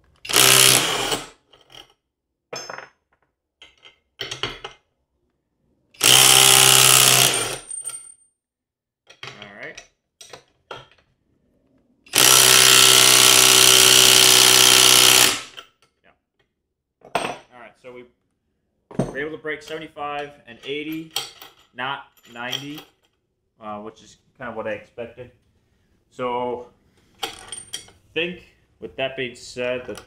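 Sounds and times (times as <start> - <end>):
impact driver hammering: 0.3 - 1.2, 6.0 - 7.7, 12.1 - 15.6.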